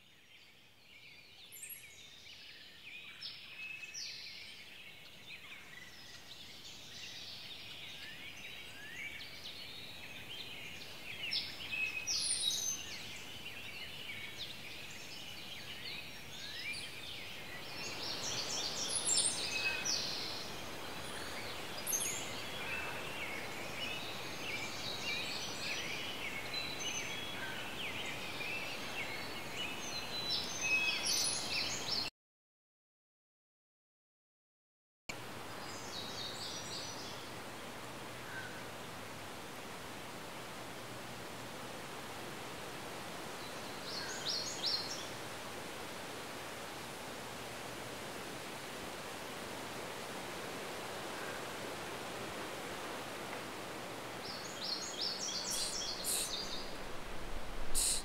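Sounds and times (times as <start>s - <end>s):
steady hiss: 35.1s - 58.0s.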